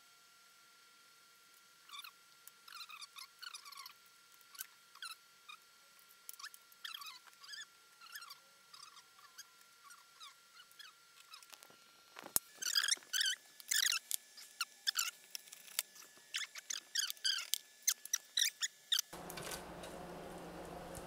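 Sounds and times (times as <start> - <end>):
steady hiss and hum: 19.2 - 21.0.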